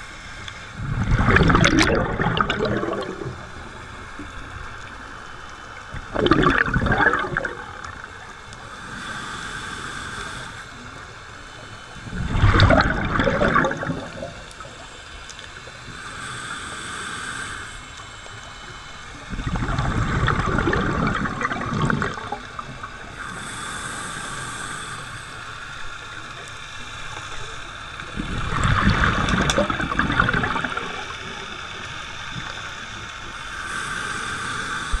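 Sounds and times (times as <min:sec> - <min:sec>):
exhaled bubbles bursting: 0:00.8 - 0:03.8, 0:06.0 - 0:08.2, 0:12.1 - 0:14.7, 0:19.3 - 0:23.0, 0:28.2 - 0:31.3
regulator inhalation hiss: 0:06.9 - 0:35.0.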